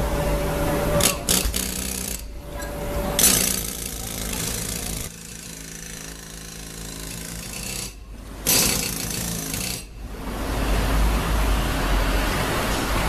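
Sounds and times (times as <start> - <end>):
steady machine hum: 0.0 - 13.0
pneumatic hammers breaking concrete: 1.0 - 2.3, 3.2 - 9.9.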